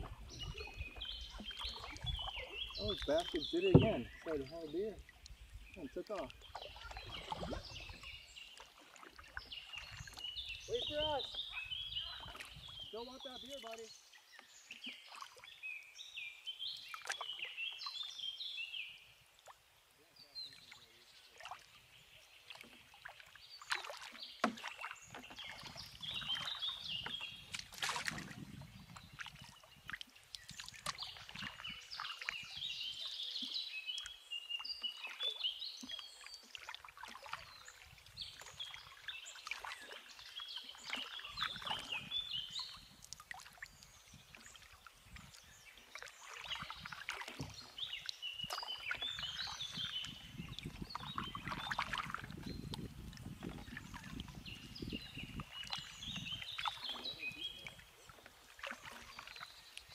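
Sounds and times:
paddle splashing water: 0.0 - 59.9
small knocks on canoe: 1.3 - 4.4, 22.5 - 28.4, 30.5 - 31.7, 46.7 - 47.8.

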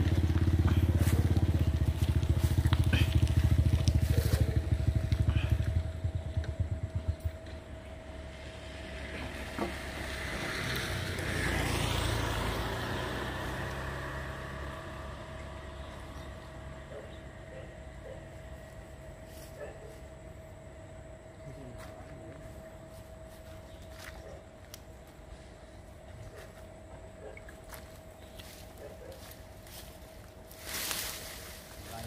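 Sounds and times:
small engine running: 0.0 - 23.0
faint steady hum: 13.5 - 32.0.

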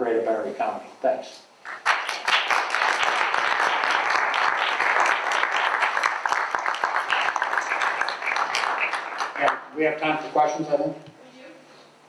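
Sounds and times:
audience applauding: 1.6 - 9.7.

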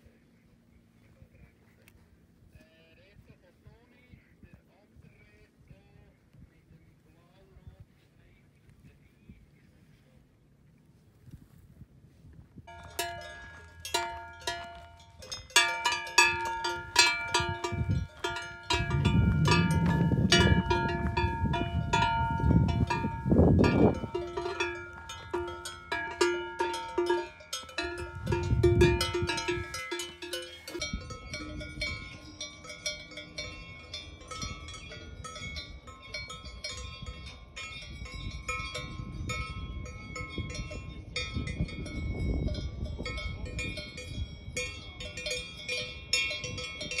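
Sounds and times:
low rumbles: 11.8 - 44.4
cowbells clanging: 12.7 - 47.0
small bells tinkling: 12.7 - 47.0.

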